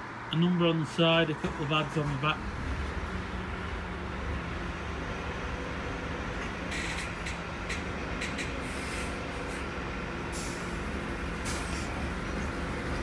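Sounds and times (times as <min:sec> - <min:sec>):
bus engine idling: 0:00.0 - 0:13.0
air brake hisses: 0:08.6 - 0:09.6, 0:10.3 - 0:10.8, 0:11.4 - 0:12.0.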